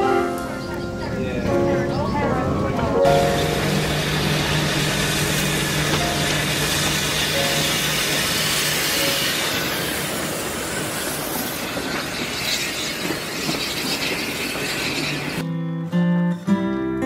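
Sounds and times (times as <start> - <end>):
carriages rushing and rattling: 0.0 - 15.4
steam train passing: 0.0 - 15.4
acoustic guitar: 15.4 - 17.0.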